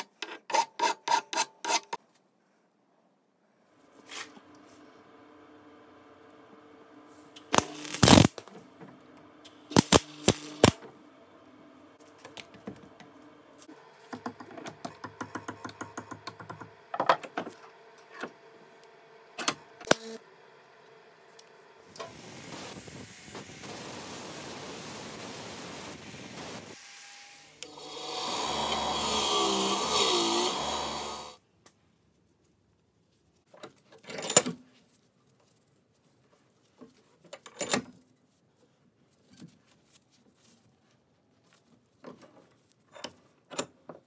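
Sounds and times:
welder crackling hiss: 7.5s - 8.5s, 9.6s - 10.8s, 21.9s - 31.4s
bench grinder grinding steel: 27.6s - 31.4s.

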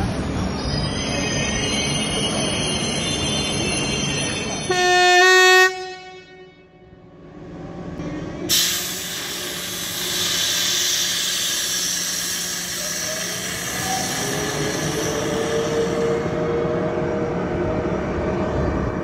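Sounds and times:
loud locomotive hiss: 8.2s - 16.4s.

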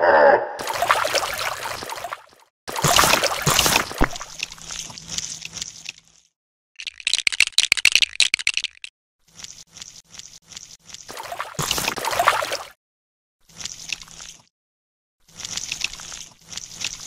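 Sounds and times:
wet crackling mud sounds: 0.6s - 7.0s
rapid small clicks and rattles: 4.4s - 11.2s, 15.2s - 17.0s.

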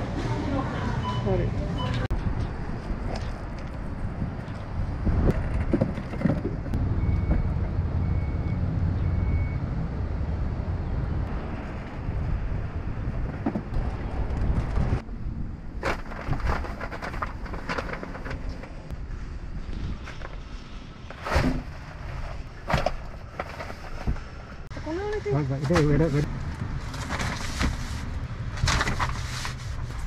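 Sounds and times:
low vehicle rumble: 0.0s - 24.9s
clattering and rustling: 5.3s - 6.8s.

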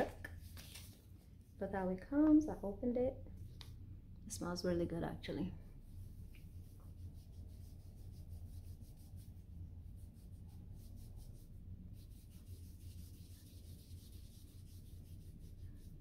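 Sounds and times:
low steady hum: 0.0s - 16.0s
pad wiping over skin: 5.8s - 16.0s.

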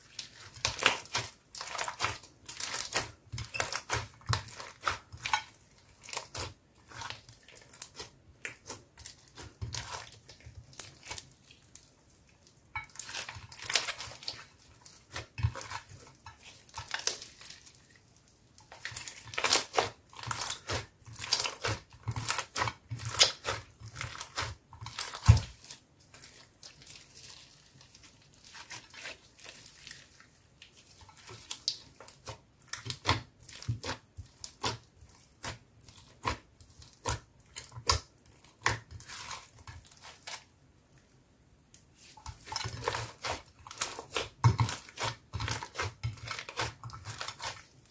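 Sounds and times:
slime crackling and popping: 0.1s - 17.8s, 18.5s - 40.5s, 42.1s - 47.9s.

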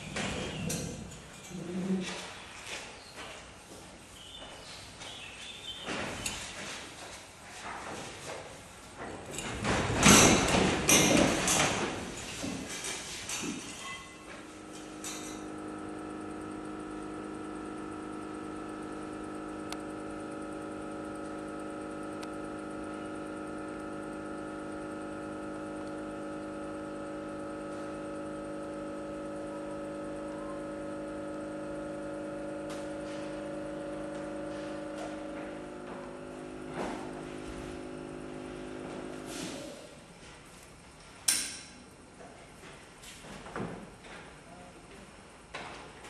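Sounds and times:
electric hoist motor running: 14.2s - 40.1s.

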